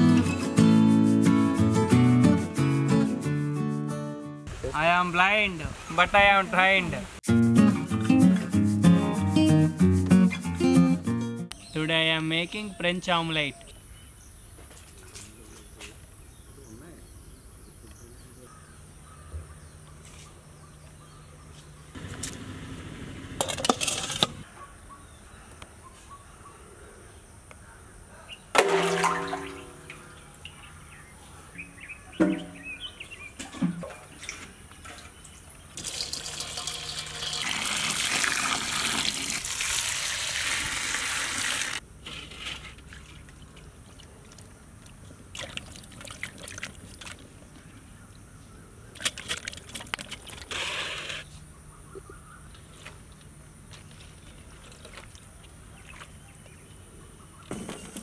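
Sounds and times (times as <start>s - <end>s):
steel bowl knocks ringing: 28.6s - 30.0s
water pouring into steel basin: 28.6s - 30.0s, 35.8s - 41.8s.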